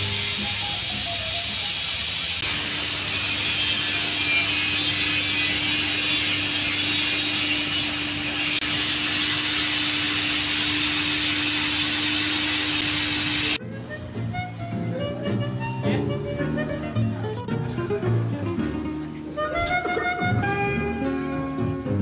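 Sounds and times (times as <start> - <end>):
steam hissing from locomotive: 0.0 - 13.6.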